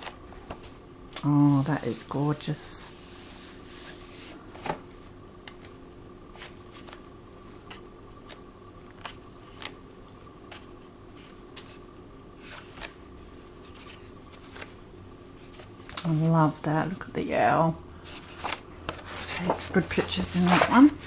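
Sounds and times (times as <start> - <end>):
faint steady hum: 0.0 - 21.0
book pages turning: 5.5 - 14.8, 15.4 - 16.3, 18.0 - 21.0.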